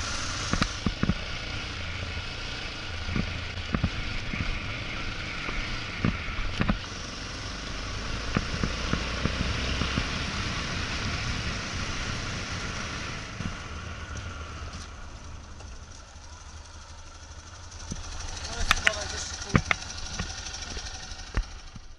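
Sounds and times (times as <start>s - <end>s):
motorcycle engine running: 0.0s - 21.9s.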